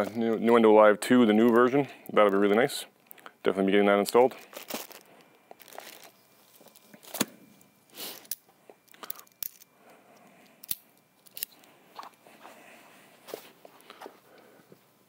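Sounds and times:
packaging rustling: 0:04.1 - 0:07.3.

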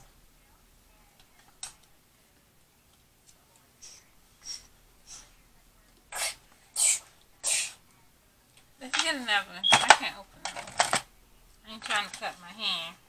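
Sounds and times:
person sniffing: 0:03.8 - 0:05.4, 0:06.1 - 0:07.8.

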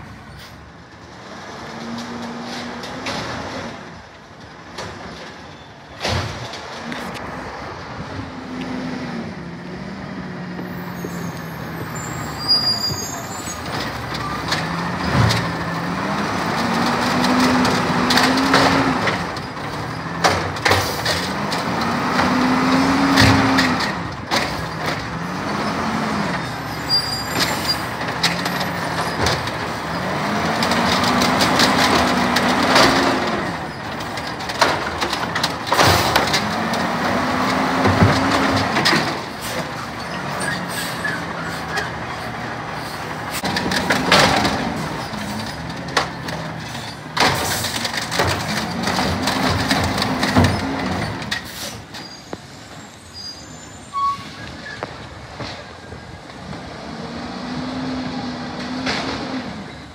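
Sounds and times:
knocks and clatter of carts: 0:00.8 - 0:08.1, 0:10.5 - 0:53.0, 0:54.3 - 0:59.9
truck diesel engine revving: 0:07.1 - 0:51.9, 0:56.4 - 0:59.7.

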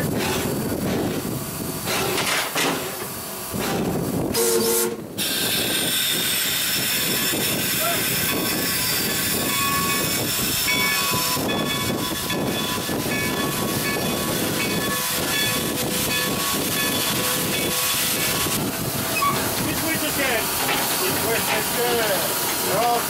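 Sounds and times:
steam locomotive hissing and running: 0:00.0 - 0:23.0
steam whistle blast: 0:04.3 - 0:06.2.

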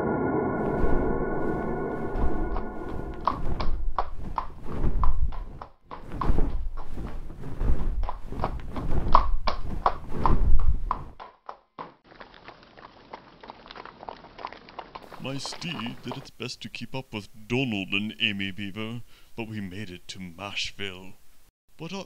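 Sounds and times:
horse hooves clip-clopping: 0:10.9 - 0:16.3.

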